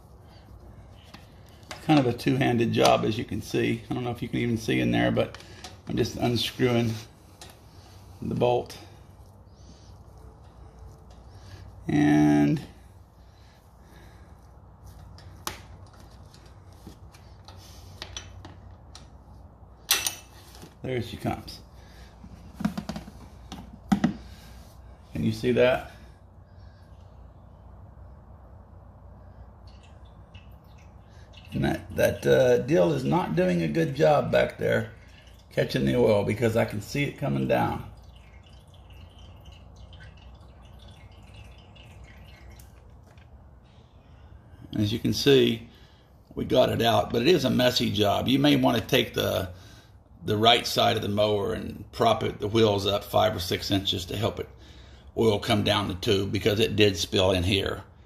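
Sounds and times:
oil dripping into plastic jug: 29.2 - 43.7.

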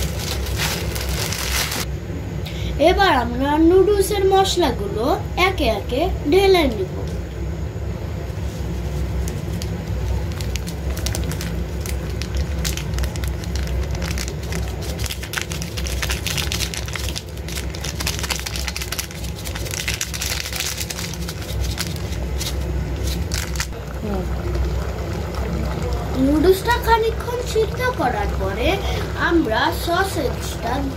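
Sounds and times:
gas burner rumble: 0.0 - 30.9
soup bubbling in a pot: 23.7 - 30.9.

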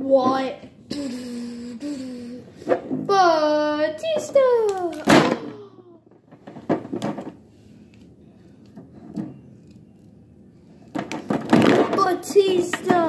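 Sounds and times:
plastic toys knocking: 4.0 - 7.4, 10.9 - 13.0.

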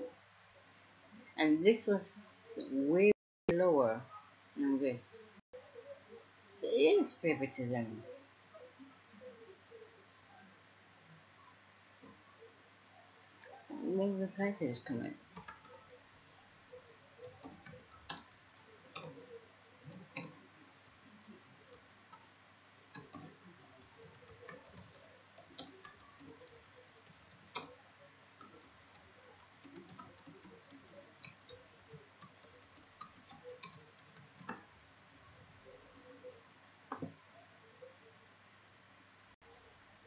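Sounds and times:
keyboard keys clicking: 28.4 - 34.7.

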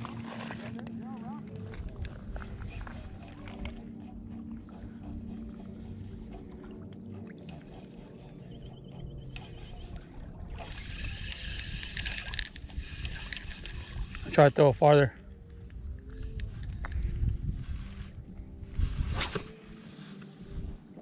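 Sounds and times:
water lapping on pebbles: 0.0 - 14.7
low hum: 0.0 - 21.0.

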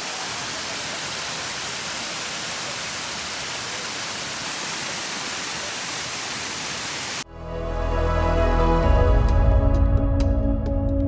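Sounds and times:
waterfall rushing onto rocks: 0.0 - 7.2.

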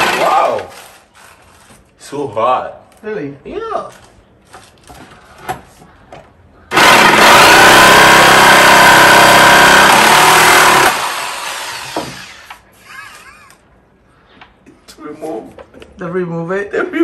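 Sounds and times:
electric jigsaw cutting wood: 0.0 - 0.6, 6.7 - 12.6.

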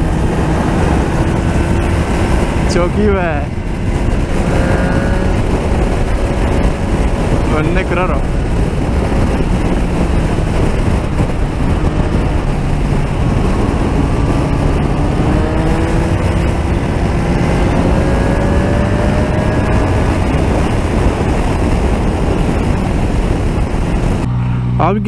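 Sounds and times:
motorcycle engine drone: 0.0 - 25.0
wind rush on microphone: 0.0 - 25.0.

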